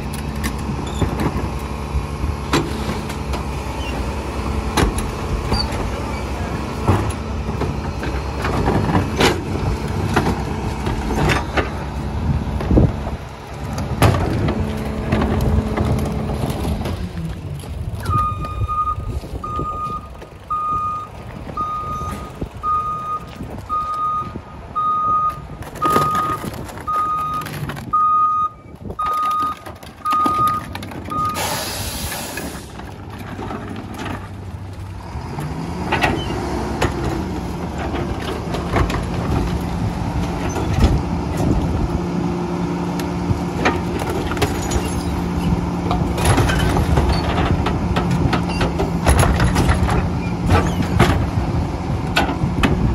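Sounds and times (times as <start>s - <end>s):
bins clanking against truck: 0.0s - 42.2s, 43.0s - 52.9s
truck engine revving: 0.0s - 52.9s
reversing alarm beeping: 18.0s - 31.9s
air brakes hiss: 31.4s - 32.8s.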